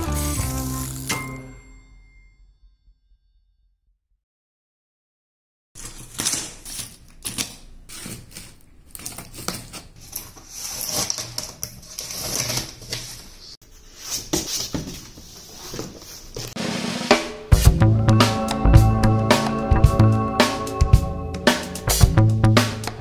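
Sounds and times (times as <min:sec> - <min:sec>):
scissors snipping packing tape: 0:05.8 - 0:12.9.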